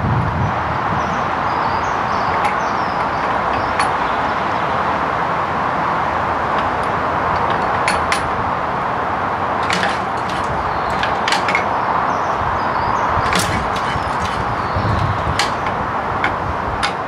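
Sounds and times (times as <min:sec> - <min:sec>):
sharp metallic clicks of controls: 0:02.2 - 0:04.1, 0:06.5 - 0:08.4, 0:09.6 - 0:11.8, 0:13.2 - 0:17.0
petrol engine running: 0:06.3 - 0:12.0, 0:13.2 - 0:17.0.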